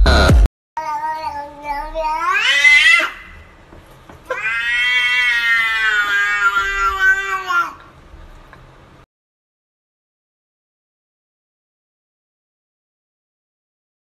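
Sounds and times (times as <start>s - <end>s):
cat meowing: 0.8s - 3.4s, 4.3s - 7.8s.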